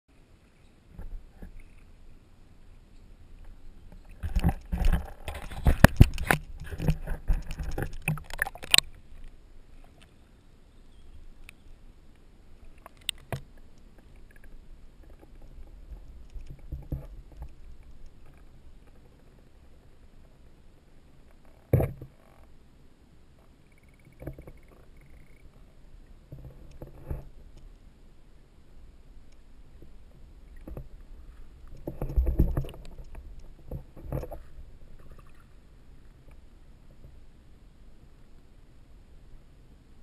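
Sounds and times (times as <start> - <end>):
faint clicks: 2.9 - 10.3, 11.4 - 20.3
water splashing against camera housing: 4.0 - 9.0, 31.7 - 34.4.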